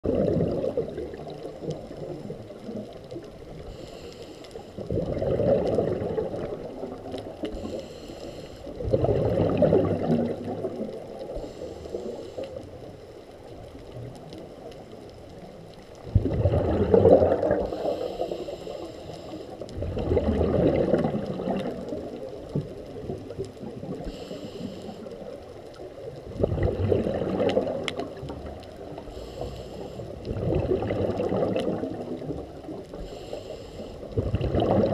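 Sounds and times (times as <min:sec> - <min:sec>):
gurgling exhaust bubbles: 0:00.0 - 0:02.8, 0:04.8 - 0:07.1, 0:08.8 - 0:11.5, 0:16.0 - 0:17.8, 0:19.7 - 0:22.1, 0:26.2 - 0:28.5, 0:30.1 - 0:32.6, 0:34.2 - 0:34.9
hiss of inhaled air: 0:03.6 - 0:04.8, 0:07.5 - 0:08.8, 0:11.3 - 0:12.7, 0:17.6 - 0:19.6, 0:24.0 - 0:25.2, 0:29.0 - 0:30.2, 0:32.9 - 0:34.1.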